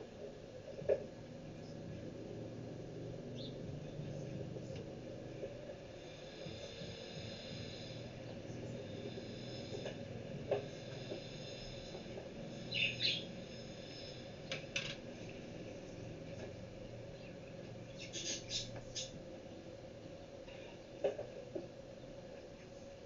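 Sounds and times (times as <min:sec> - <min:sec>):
steady low hum: 0:00.0 - 0:23.0
bird chirping: 0:03.3 - 0:03.6, 0:12.6 - 0:14.1, 0:17.2 - 0:19.2.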